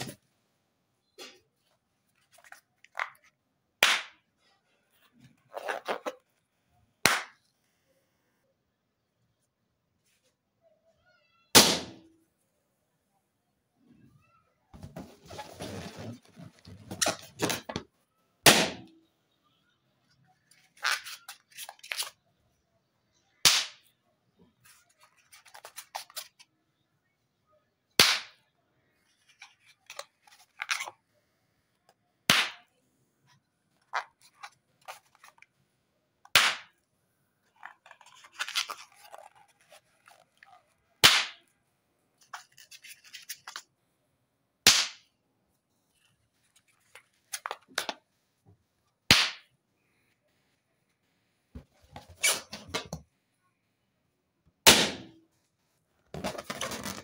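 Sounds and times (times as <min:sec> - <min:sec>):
balloons popping: 0:03.8 - 0:04.2, 0:07.0 - 0:07.4, 0:11.5 - 0:12.1, 0:14.8 - 0:17.8, 0:18.4 - 0:19.0, 0:36.3 - 0:36.7, 0:56.1 - 0:57.0
balloon rubbing and handling: 0:05.0 - 0:06.2, 0:14.8 - 0:17.8, 0:37.5 - 0:40.9, 0:50.3 - 0:53.0, 0:55.3 - 0:57.0.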